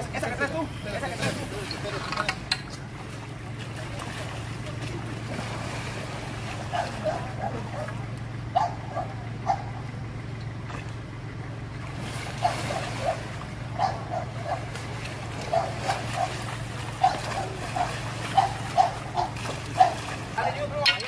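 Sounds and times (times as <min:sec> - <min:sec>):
steady low hum: 0:00.0 - 0:21.0
dog barking: 0:06.7 - 0:09.8, 0:12.4 - 0:14.7, 0:15.5 - 0:16.4, 0:17.0 - 0:20.0.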